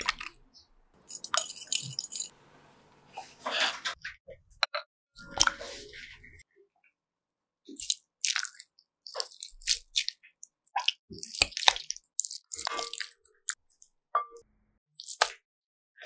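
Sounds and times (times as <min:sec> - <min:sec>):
wet squishing of tofu: 0:07.6 - 0:14.0.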